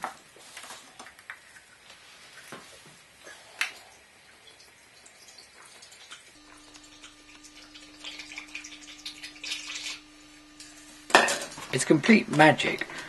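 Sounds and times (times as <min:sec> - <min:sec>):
liquid trickling into funnel: 0:03.8 - 0:10.4
faint steady hum: 0:06.0 - 0:13.0
bottle clinking: 0:11.1 - 0:11.7.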